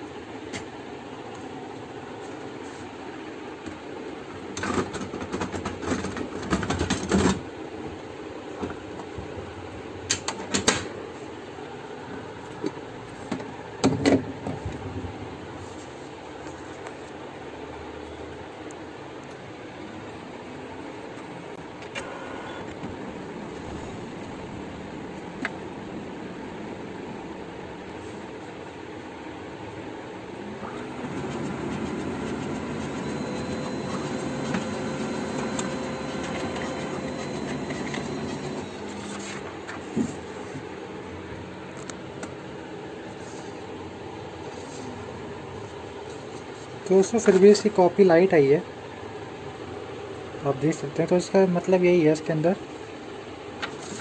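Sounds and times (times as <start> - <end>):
steady background hum: 0.0 - 54.0
printer motor and rollers running: 1.3 - 11.3, 20.4 - 47.8.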